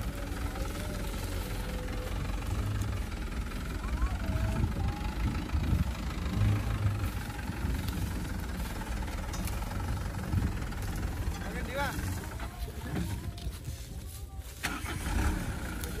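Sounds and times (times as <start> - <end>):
diesel engine rumbling: 0.0 - 16.0.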